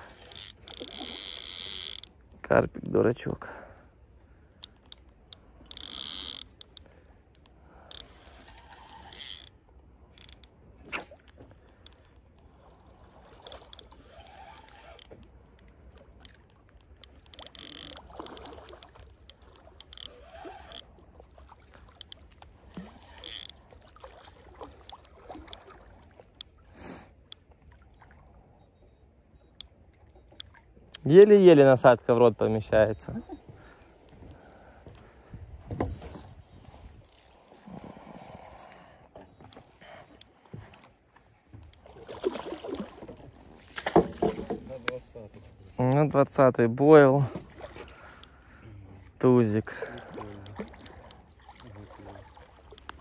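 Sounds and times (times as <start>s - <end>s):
water splashing and dripping: 10.9s - 28.3s, 39.2s - 45.2s, 49.2s - 53.0s.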